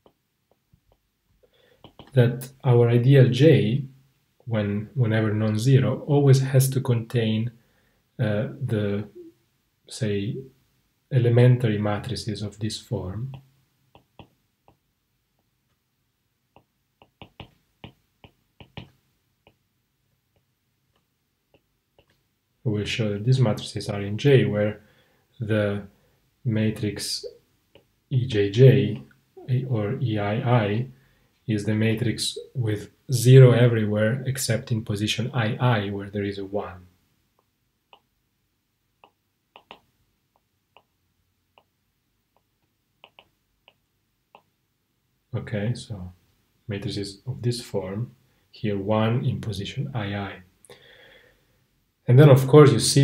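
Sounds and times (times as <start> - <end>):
stylus tapping on a screen: 1.8 - 2.2, 13.3 - 15.5, 16.5 - 19.6, 20.3 - 22.2, 39.0 - 41.0, 41.6 - 44.5.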